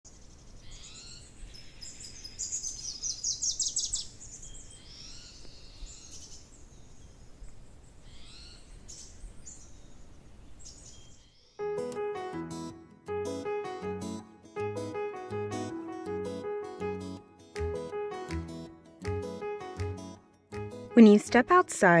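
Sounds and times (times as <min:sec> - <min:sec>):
songbirds singing: 0:00.1 - 0:11.6.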